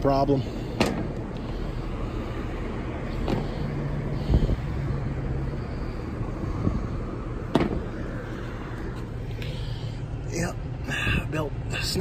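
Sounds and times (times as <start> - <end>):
traffic rumble: 0.0 - 12.0
dull thump: 7.5 - 7.9.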